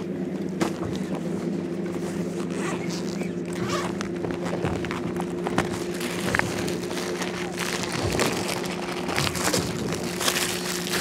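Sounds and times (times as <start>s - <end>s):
boat motor humming: 0.0s - 11.0s
tackle clicks and rustles: 2.3s - 11.0s.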